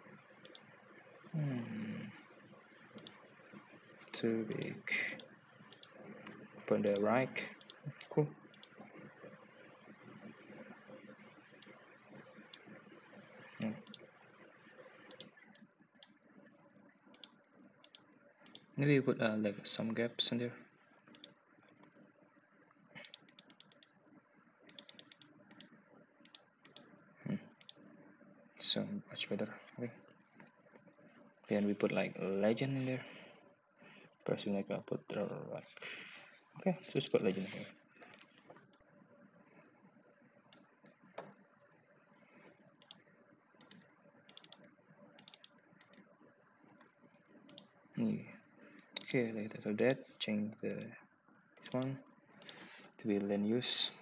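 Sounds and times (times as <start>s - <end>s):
low room noise: 0.0s - 54.0s
faint computer clicks: 0.4s - 0.8s, 2.9s - 3.3s, 4.0s - 9.1s, 9.9s - 12.9s, 13.6s - 14.1s, 14.9s - 16.2s, 17.1s - 18.8s, 21.0s - 22.0s, 22.6s - 24.0s, 24.7s - 27.9s, 37.9s - 38.9s, 42.4s - 46.1s, 46.7s - 47.8s, 48.7s - 50.0s, 50.7s - 51.0s, 51.6s - 53.3s
keyboard keys clicking: 45.2s - 46.0s.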